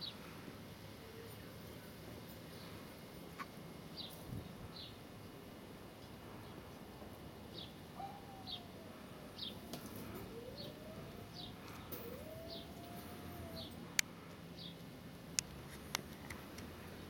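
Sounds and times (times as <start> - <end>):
bird chirping: 7.5 - 13.8.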